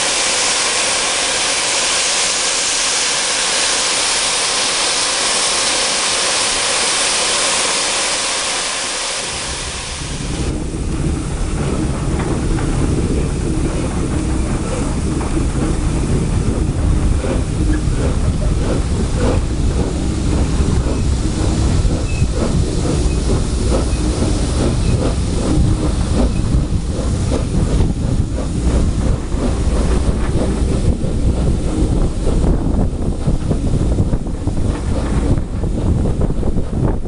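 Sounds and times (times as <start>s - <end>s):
carriages rumbling on rails: 0.0s - 37.0s
steam locomotive exhaust beats: 0.0s - 37.0s.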